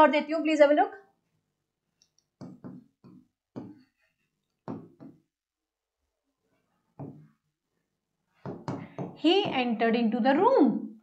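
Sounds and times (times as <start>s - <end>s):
stylus knocking on glass: 2.4s - 3.8s, 4.6s - 5.2s, 7.0s - 7.3s.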